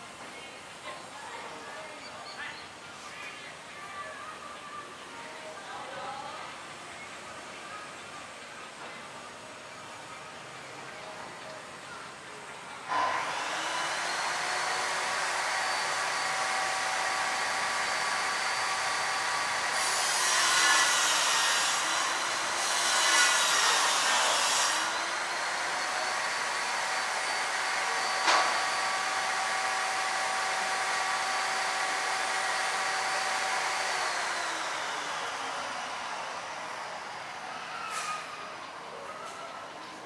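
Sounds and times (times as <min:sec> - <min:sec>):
machine whine: 0:11.6 - 0:40.0.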